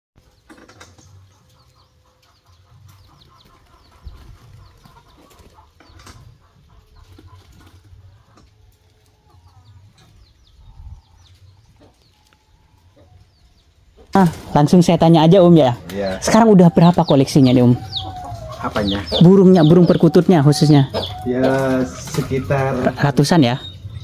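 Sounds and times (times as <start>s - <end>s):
birds chirping: 0.2s - 24.0s
chickens clucking: 0.2s - 24.0s
birds cooing: 15.4s - 24.0s.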